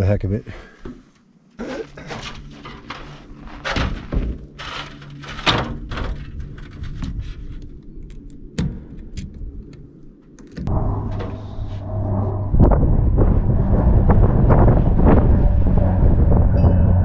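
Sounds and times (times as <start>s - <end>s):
step ladder thunks and scrapes: 2.0s - 7.5s.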